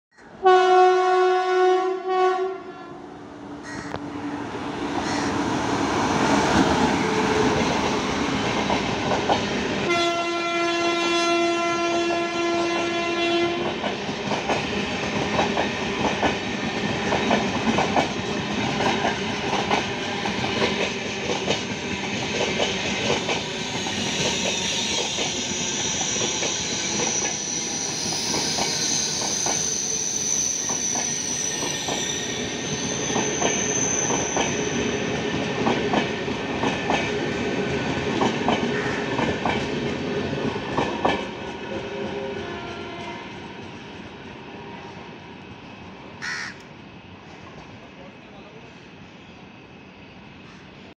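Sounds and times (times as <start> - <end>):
train horn blasts: 0.4 - 3.0, 9.8 - 13.7, 42.2 - 43.4
train wheels clattering: 13.6 - 42.2.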